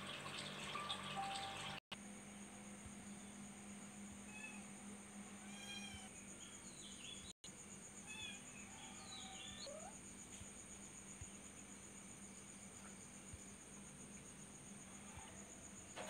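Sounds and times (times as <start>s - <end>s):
insect trill: 0.0s - 16.0s
cat meowing: 5.4s - 6.1s.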